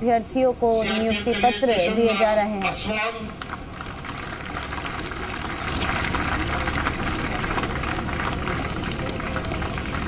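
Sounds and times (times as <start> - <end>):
crowd applauding: 3.4 - 10.0.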